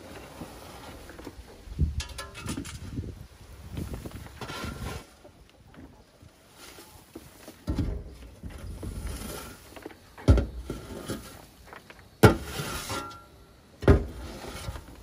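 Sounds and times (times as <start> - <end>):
shovel scraping plywood floor: 4.3 - 5.2, 8.5 - 11.6, 12.2 - 13.2, 13.8 - 15.0.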